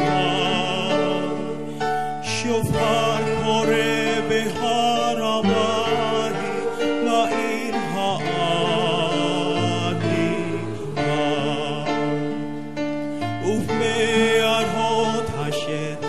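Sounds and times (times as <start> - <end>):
choir singing chords: 0.0 - 16.0.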